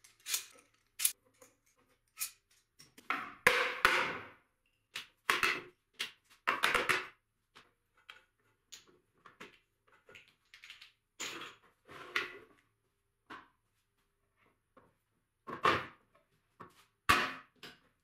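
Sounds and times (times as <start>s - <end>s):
metal clamps clicking and knocking: 0.0s - 3.1s.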